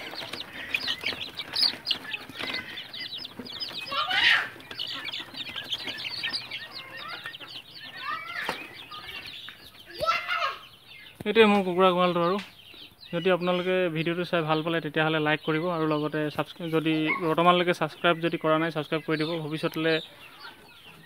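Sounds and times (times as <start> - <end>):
chicken squawk: 0.0 - 10.6
chickens peeping: 0.0 - 21.0.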